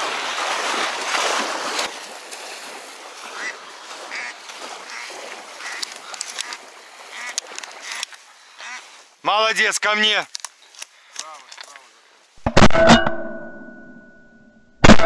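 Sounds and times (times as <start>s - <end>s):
water splashing: 0.0s - 9.2s
water swirling: 0.0s - 9.2s
duck quacks: 3.3s - 5.9s, 7.1s - 8.0s, 8.6s - 8.9s.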